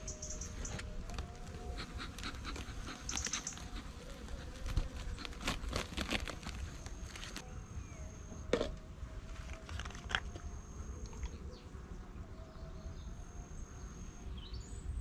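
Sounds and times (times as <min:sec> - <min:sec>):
bee smoker puffs: 0:00.5 - 0:07.4
hive cover clicks and rustles: 0:00.7 - 0:07.4
bees buzzing: 0:01.2 - 0:07.4.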